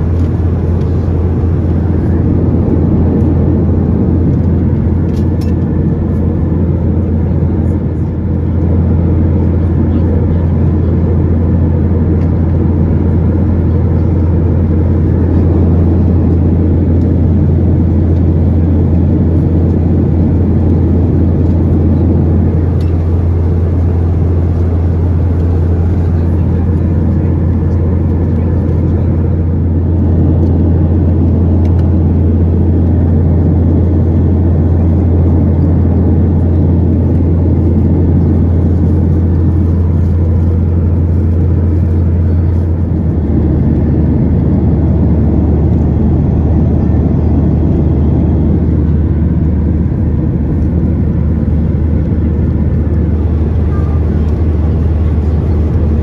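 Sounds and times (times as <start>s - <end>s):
aircraft cabin engine drone: 0.0s - 56.0s.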